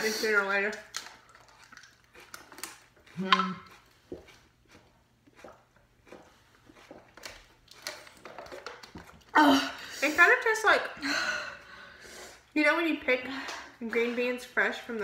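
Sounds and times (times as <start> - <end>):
gulping water from bottle: 0.2 - 9.8
swallowing: 1.2 - 9.4
plastic bottle crinkling: 6.9 - 9.4.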